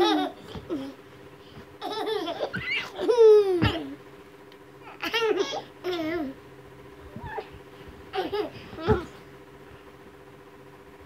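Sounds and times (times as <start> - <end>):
toddler laughing and squealing: 2.2 - 3.8.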